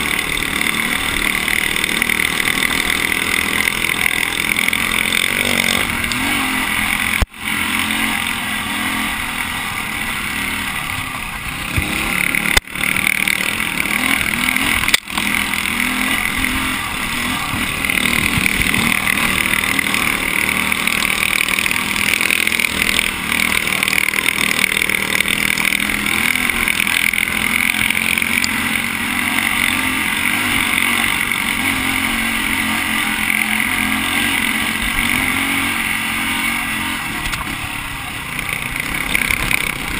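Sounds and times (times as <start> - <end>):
dirt bike engine running: 0.0 - 39.9.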